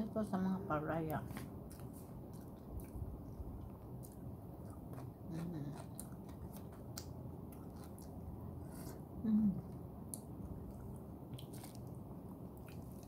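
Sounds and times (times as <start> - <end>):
person chewing food: 1.6 - 13.0
person humming: 9.2 - 9.7.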